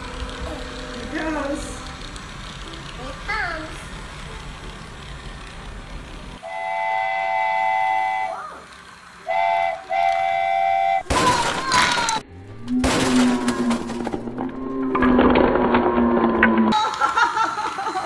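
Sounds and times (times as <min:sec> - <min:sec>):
toy train electronic horn: 0:06.4 - 0:08.5, 0:09.1 - 0:11.1
wooden blocks clattering: 0:11.1 - 0:17.2.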